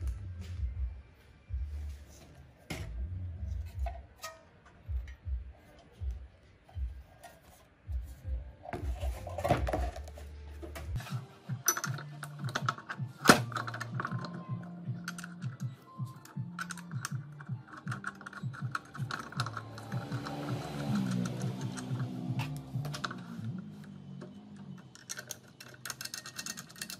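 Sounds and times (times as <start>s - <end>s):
background music with bass line: 0.0s - 4.2s, 4.8s - 7.2s, 7.8s - 24.0s
metal clicks and knocks: 11.6s - 26.9s.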